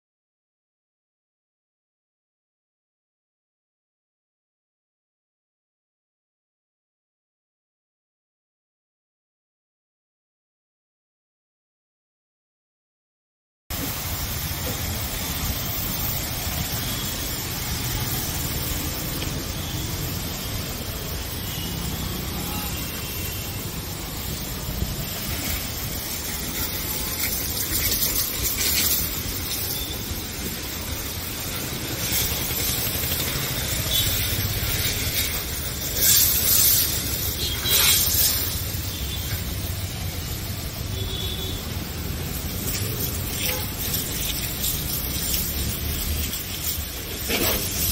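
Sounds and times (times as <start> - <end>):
foam spraying hiss: 13.7 - 47.9.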